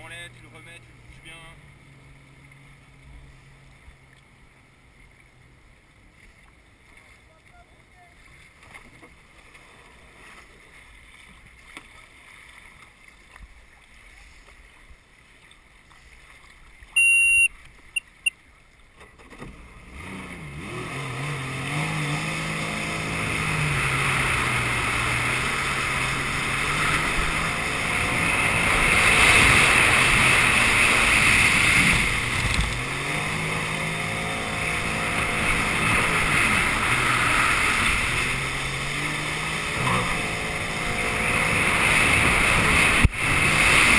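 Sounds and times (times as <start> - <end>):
jet ski engine: 0.0 - 43.9
rushing water: 0.0 - 43.9
electronic beeps: 17.0 - 18.3.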